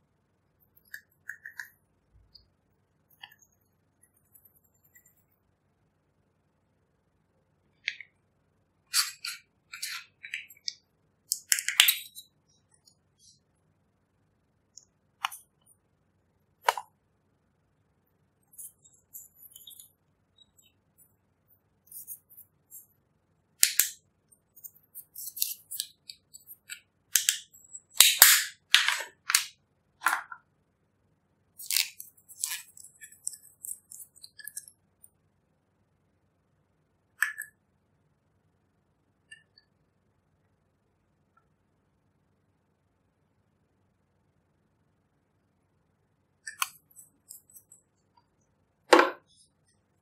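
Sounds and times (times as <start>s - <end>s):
plastic tool scraping eyeshadow: 8.9s - 10.6s, 24.6s - 27.9s.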